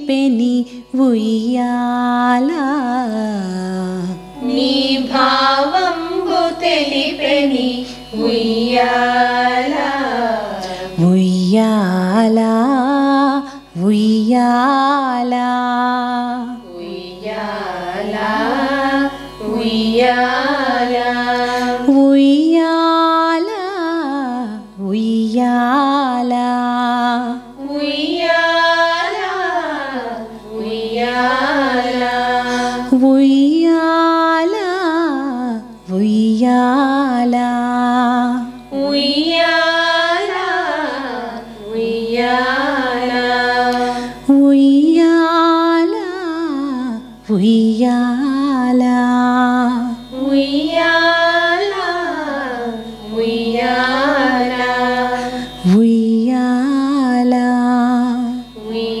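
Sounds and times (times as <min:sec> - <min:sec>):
steady drone: 0:00.0 - 0:59.0
woman singing lullaby: 0:43.8 - 0:59.0.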